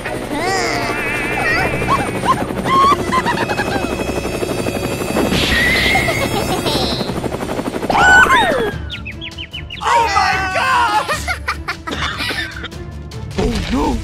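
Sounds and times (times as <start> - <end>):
cartoon helicopter rotor chopping: 0.0 - 9.0
rising buzzy tone: 0.1 - 8.6
wobbling sliding effect tones: 0.2 - 8.7.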